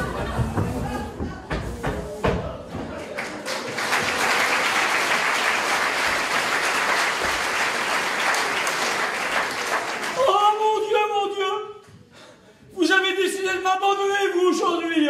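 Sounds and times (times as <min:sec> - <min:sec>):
audience applauding: 0:02.9 - 0:10.6.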